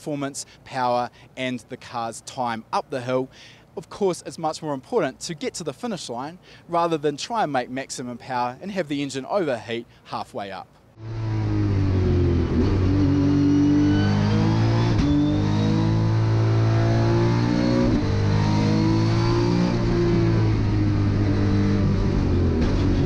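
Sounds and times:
race car engine revving: 11.0 - 23.0.

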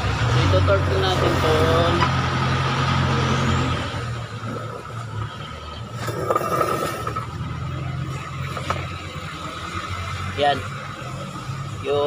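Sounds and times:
street noise: 0.0 - 12.0
vehicle engine humming: 0.0 - 12.0.

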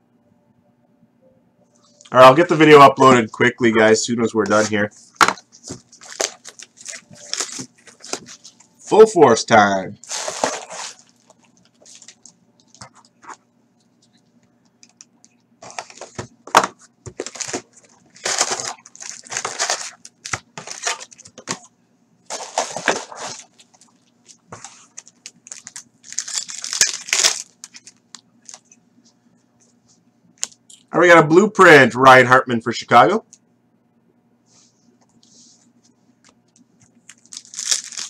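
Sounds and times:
foil packs tearing and crinkling: 5.8 - 8.5, 10.0 - 12.9, 17.1 - 21.6, 22.3 - 28.6, 37.1 - 38.0.

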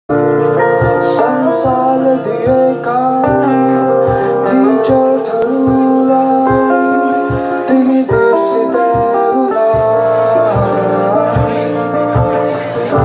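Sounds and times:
acoustic guitars playing: 0.1 - 13.0.

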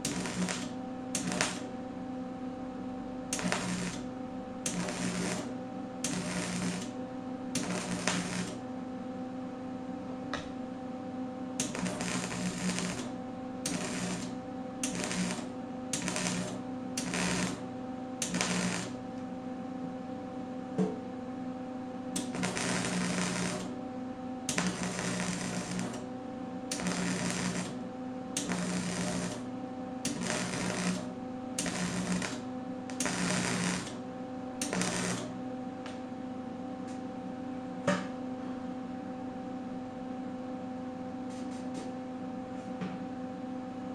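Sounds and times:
welding arc crackling: 0.0 - 1.7, 3.3 - 7.0, 7.6 - 8.6, 11.6 - 19.1, 22.2 - 23.8, 24.5 - 26.1, 26.7 - 27.8, 28.4 - 29.5, 30.1 - 34.0, 34.6 - 35.4.

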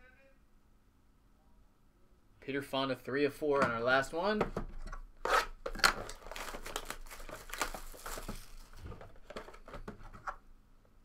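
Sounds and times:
cellophane crinkling: 5.6 - 10.3.

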